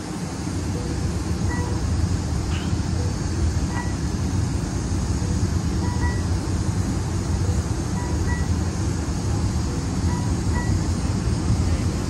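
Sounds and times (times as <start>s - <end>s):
train engine rumble and hum: 0.0s - 12.0s
faint short beeps: 3.7s - 4.0s, 5.8s - 6.3s, 8.0s - 8.6s, 10.1s - 10.9s.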